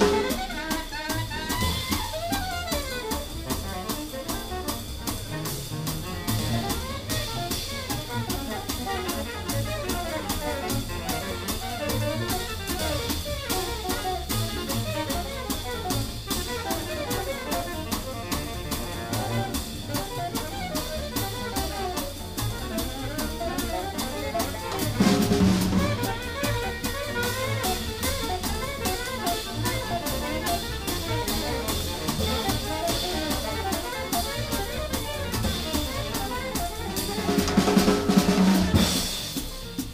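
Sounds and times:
drum accent: 0.0 - 39.9
upright bass: 0.0 - 39.9.

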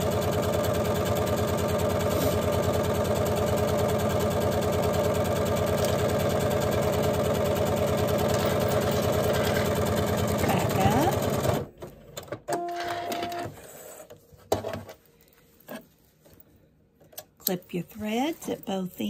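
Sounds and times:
sewing machine stitching: 0.0 - 11.7.

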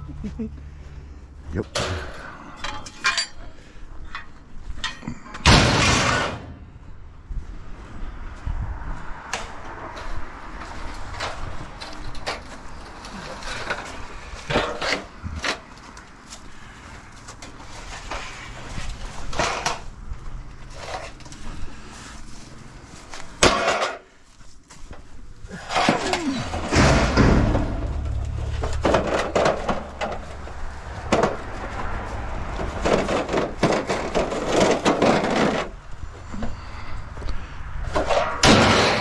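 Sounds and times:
scrap metal clattering: 1.6 - 6.8, 10.9 - 16.0, 16.6 - 19.9, 23.0 - 24.2, 25.5 - 36.1, 37.9 - 39.0
metal bang: 5.4 - 6.8, 25.8 - 31.8, 38.0 - 39.0
low rumble: 26.2 - 32.9.

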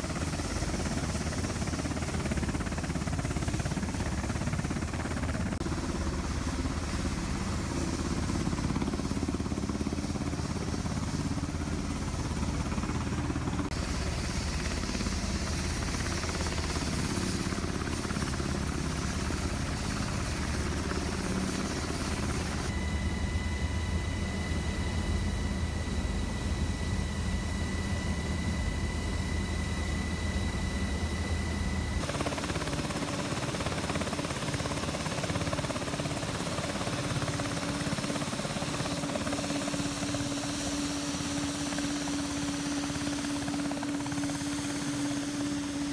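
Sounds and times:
helicopter rotor and engine drone: 0.0 - 45.9
high steady whine: 4.8 - 32.6.

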